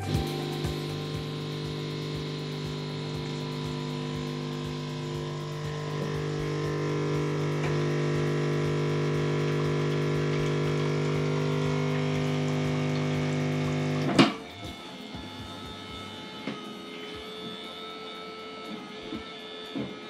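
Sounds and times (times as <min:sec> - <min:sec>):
espresso machine pump humming: 0:00.0 - 0:20.0
water pouring into a cup: 0:01.4 - 0:14.1.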